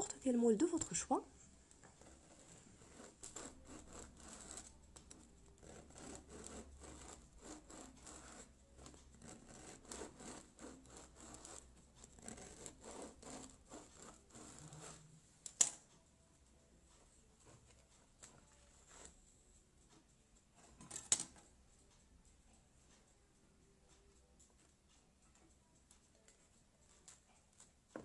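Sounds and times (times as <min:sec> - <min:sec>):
knife sawing through bread: 0:02.0 - 0:04.8, 0:05.6 - 0:15.1.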